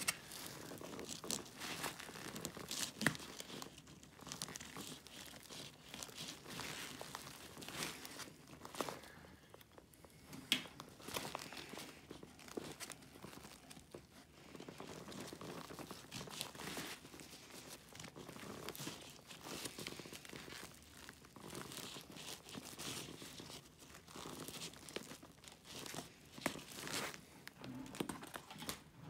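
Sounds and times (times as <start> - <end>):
nylon strap rustling: 0.0 - 29.0.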